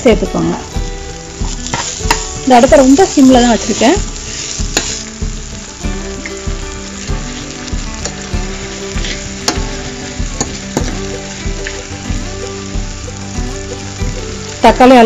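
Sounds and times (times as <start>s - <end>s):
vegetables sizzling in a pan: 0.0s - 15.0s
metal spoon scraping a pan: 1.4s - 2.2s, 8.9s - 9.7s.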